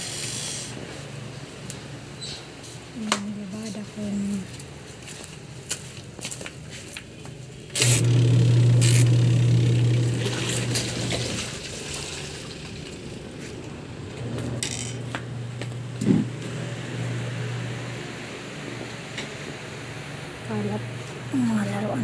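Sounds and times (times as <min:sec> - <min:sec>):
spin dryer motor humming: 0:07.8 - 0:22.0.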